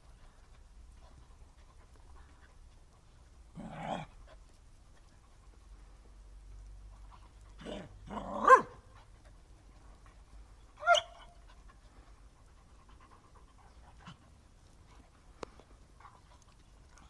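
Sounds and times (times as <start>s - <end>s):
dogs barking and yelping: 7.6s - 9.1s, 10.7s - 11.6s.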